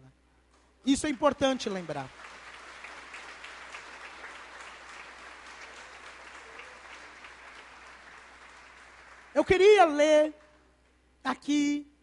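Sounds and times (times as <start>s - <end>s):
crowd applauding: 1.0s - 10.0s.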